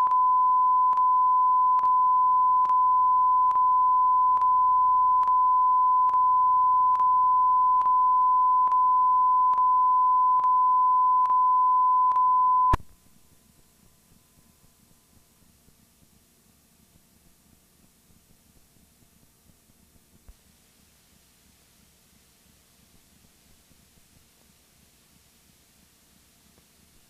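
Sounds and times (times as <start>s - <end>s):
electronic test tone: 0.0s - 12.8s
faint hiss: 12.8s - 27.0s.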